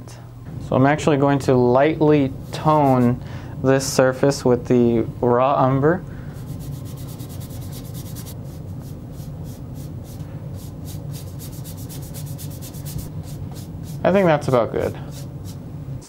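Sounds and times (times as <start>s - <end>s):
bristle brush scrubbing paint: 2.4s - 3.2s, 6.4s - 15.6s.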